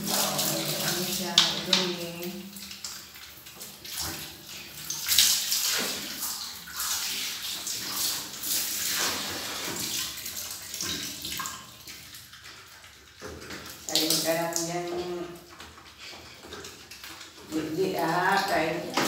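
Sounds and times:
piglet slurping feed: 0.0 - 19.0.

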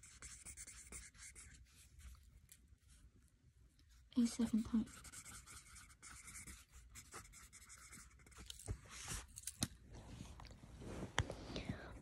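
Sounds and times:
pen scratching on paper: 0.0 - 1.8, 4.4 - 8.6.

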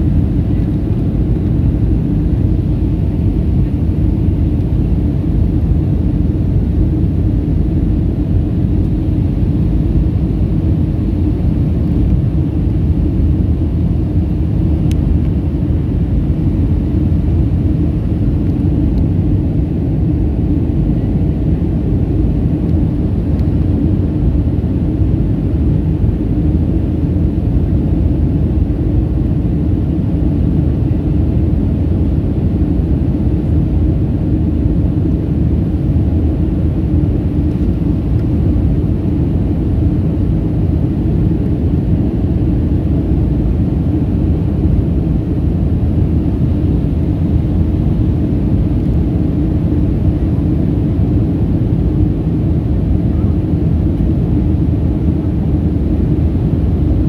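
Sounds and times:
jet engine rumble in cabin: 0.0 - 57.0.

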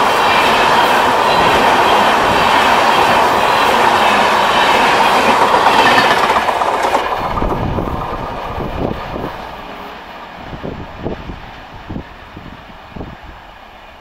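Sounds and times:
train wheels rushing on rail: 0.0 - 14.0
wheels clattering over rail joints: 4.7 - 9.9.

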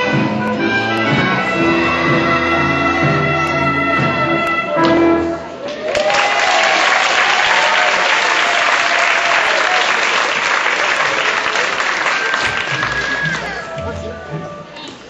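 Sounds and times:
audience applause: 5.6 - 13.8.

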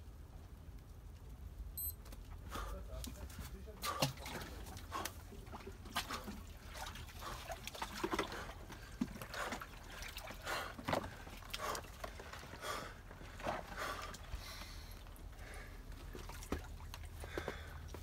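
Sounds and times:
man breathing irregularly: 2.4 - 3.0, 8.2 - 16.1, 17.2 - 18.0
icy water sloshing: 3.0 - 18.0.

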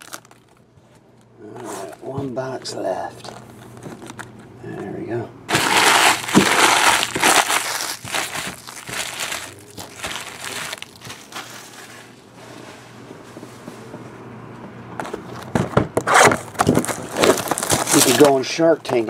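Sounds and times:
plastic wrapping crinkling: 0.0 - 0.6, 5.5 - 12.2, 16.6 - 18.5.

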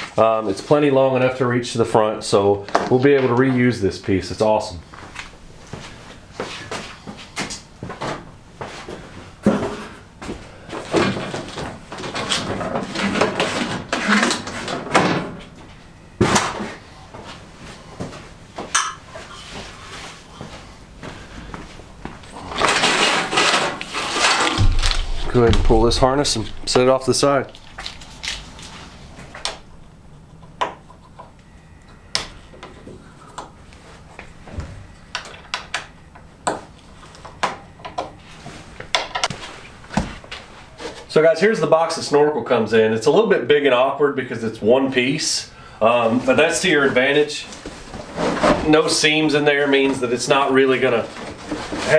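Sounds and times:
wiring rustling and clattering: 10.8 - 14.9, 22.2 - 29.6.

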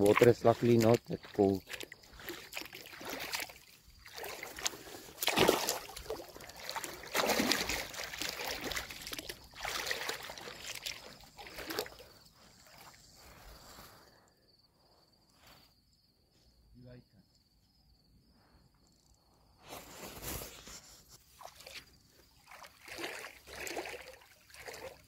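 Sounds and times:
water sloshing from wading: 0.0 - 13.8, 21.3 - 25.0.

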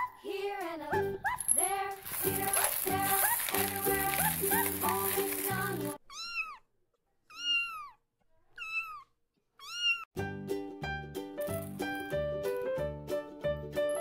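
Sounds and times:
background music: 0.3 - 6.0, 10.2 - 14.0
kitten mewing: 7.3 - 10.1.

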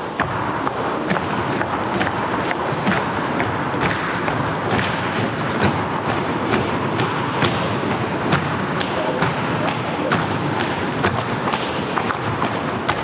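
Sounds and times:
murmur of voices: 4.4 - 13.0.

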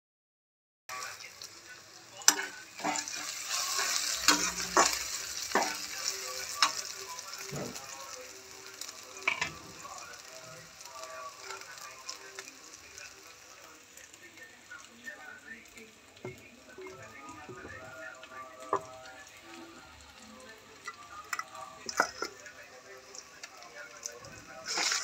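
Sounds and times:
food sizzling in hot oil: 0.9 - 25.0
spatula scraping and knocking pan: 2.3 - 5.9.

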